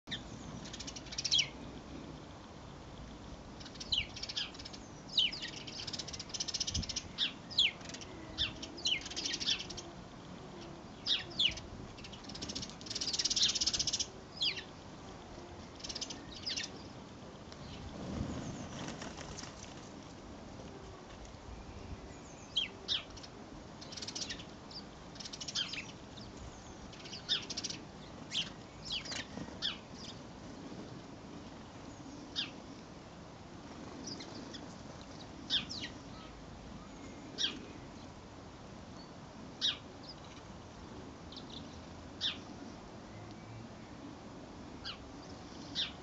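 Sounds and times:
small birds singing: 0:00.0 - 0:02.0, 0:02.9 - 0:15.0, 0:15.6 - 0:19.8, 0:21.5 - 0:33.0, 0:33.6 - 0:38.2, 0:38.9 - 0:44.1, 0:44.7 - 0:46.0.

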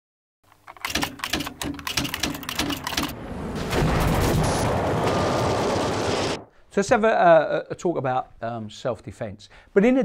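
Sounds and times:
sharp clicks: 0:00.5 - 0:03.2
dense rush of noise: 0:03.0 - 0:06.5.

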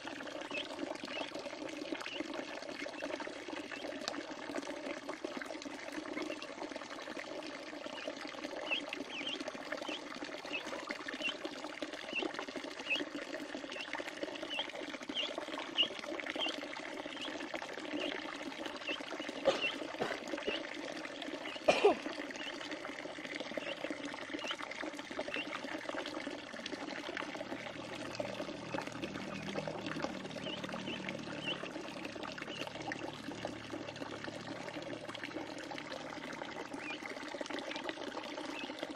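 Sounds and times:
water splashing and trickling: 0:00.0 - 0:38.9
ducklings peeping: 0:00.4 - 0:01.3, 0:02.0 - 0:02.3, 0:07.9 - 0:11.4, 0:12.1 - 0:13.0, 0:13.7 - 0:17.4, 0:18.0 - 0:18.2, 0:18.8 - 0:20.6, 0:21.4 - 0:21.7, 0:22.3 - 0:22.6, 0:23.6 - 0:24.6, 0:25.3 - 0:25.6, 0:28.1 - 0:32.8, 0:36.7 - 0:37.0, 0:38.5 - 0:38.7.

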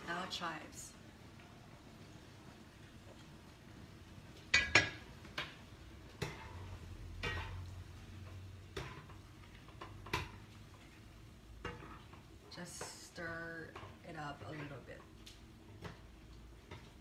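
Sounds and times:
metal utensils clinking on frying pan: 0:04.5 - 0:10.5, 0:11.6 - 0:14.9.

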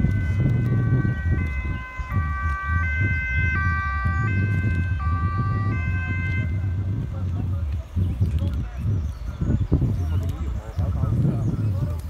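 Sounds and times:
two-tone emergency siren: 0:00.0 - 0:07.1
low rumble: 0:00.0 - 0:12.0.

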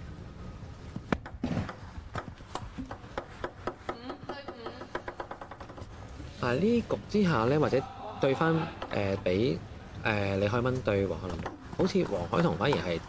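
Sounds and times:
ping pong ball bouncing: 0:01.1 - 0:06.0, 0:08.8 - 0:09.4, 0:11.2 - 0:13.0.

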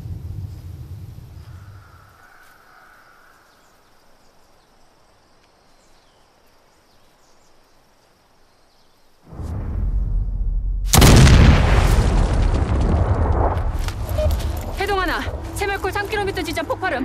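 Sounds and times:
loud low rumble: 0:00.0 - 0:01.7, 0:09.3 - 0:17.0
faint forest ambience: 0:00.0 - 0:17.0.

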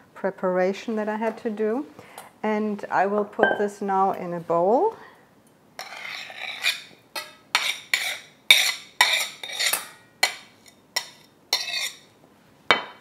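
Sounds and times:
knife clinking on plate and bowl: 0:05.8 - 0:12.0
knife scraping a plate: 0:05.8 - 0:12.1.

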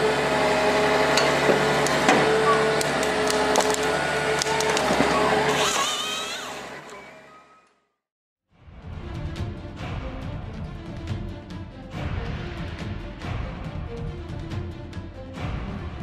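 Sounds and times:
harvester engine and hydraulics: 0:00.0 - 0:07.8
rising machine whine: 0:00.0 - 0:07.8
wood cracking and snapping: 0:02.8 - 0:05.0.

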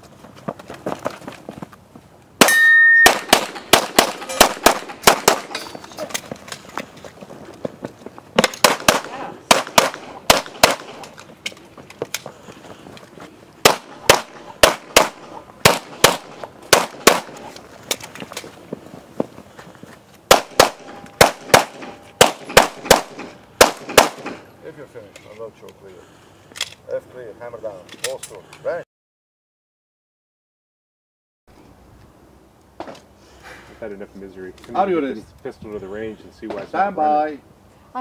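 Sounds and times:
handgun firing rapid shots: 0:02.4 - 0:05.6, 0:08.4 - 0:11.1, 0:13.6 - 0:17.4, 0:20.3 - 0:24.4
shot timer beep: 0:02.5 - 0:03.2.

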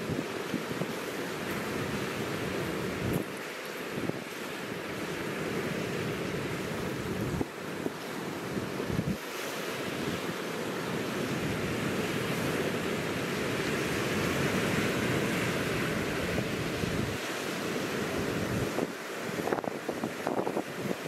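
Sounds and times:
waves breaking on stony beach: 0:00.0 - 0:21.0
wind buffeting microphone: 0:08.7 - 0:09.2, 0:18.1 - 0:21.0.

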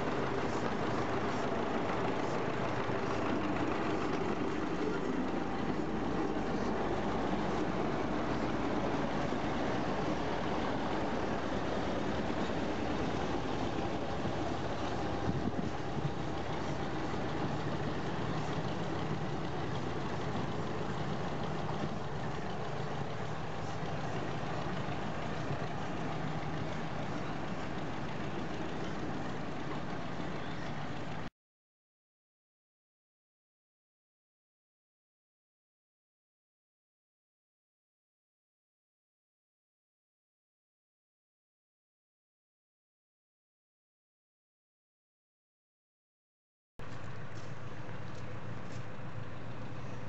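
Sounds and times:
diesel locomotive engine running: 0:00.0 - 0:31.3, 0:46.8 - 0:50.0.

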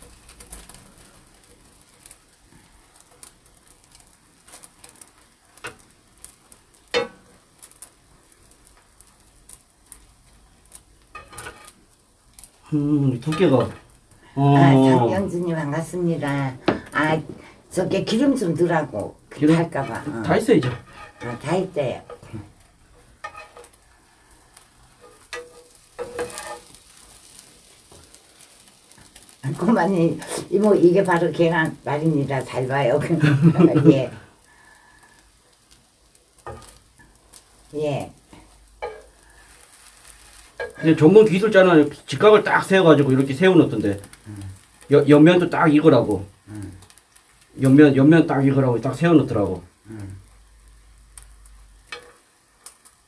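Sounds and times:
egg sizzling in a frying pan: 0:00.0 - 0:53.0
metal spatula tapping pan: 0:06.9 - 0:07.4, 0:11.1 - 0:11.7, 0:19.6 - 0:22.2, 0:23.0 - 0:23.8, 0:25.0 - 0:26.8, 0:38.8 - 0:39.1, 0:51.9 - 0:52.2.

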